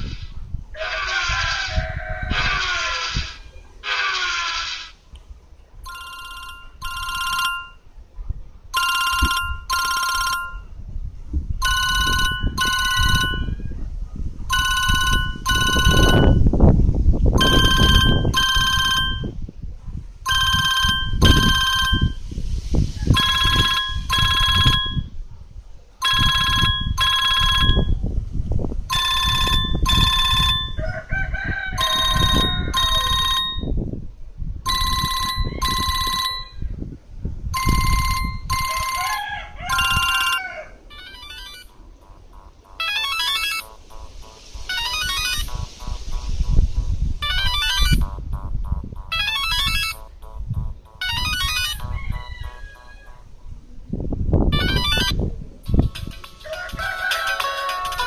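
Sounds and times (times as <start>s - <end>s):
wind buffeting microphone: 0.0s - 3.8s, 4.9s - 40.9s, 43.6s - 58.0s
phone ringtone beeping: 5.9s - 7.8s, 8.8s - 10.8s, 11.6s - 13.6s, 14.5s - 16.5s, 17.4s - 19.4s, 20.3s - 22.2s, 23.1s - 25.1s, 26.0s - 28.0s, 28.9s - 30.8s, 31.8s - 33.8s, 34.7s - 36.6s, 37.6s - 46.6s, 47.2s - 53.3s, 54.5s - 58.0s.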